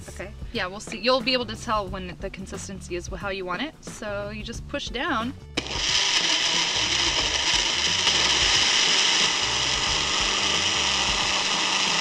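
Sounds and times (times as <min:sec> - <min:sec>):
blender motor whirring: 0:05.6 - 0:12.0.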